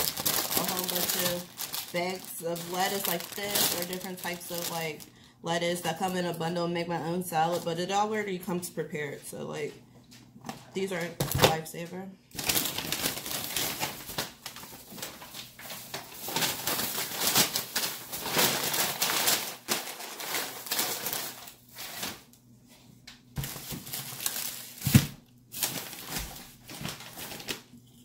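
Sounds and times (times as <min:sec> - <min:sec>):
plastic bags rustling: 0:00.0 - 0:06.4, 0:12.3 - 0:22.4, 0:23.4 - 0:27.8.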